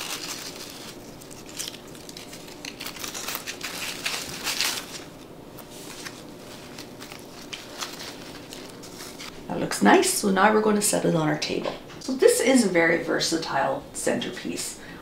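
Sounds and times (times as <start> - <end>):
artificial flowers rustling: 0.0 - 9.6.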